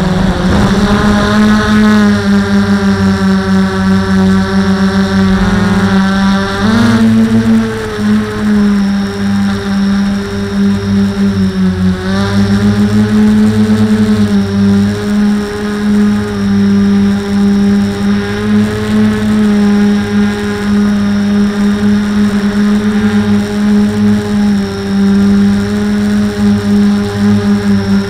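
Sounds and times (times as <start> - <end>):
fast throbbing: 0.0 - 10.5
drone propellers humming: 0.0 - 28.0.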